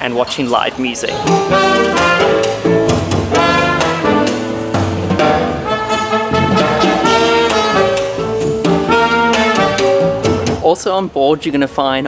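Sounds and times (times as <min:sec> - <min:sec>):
piano: 0:00.2 - 0:10.8
drums: 0:01.0 - 0:11.0
trumpet: 0:01.3 - 0:02.6, 0:03.3 - 0:10.0
trombone: 0:01.3 - 0:10.5.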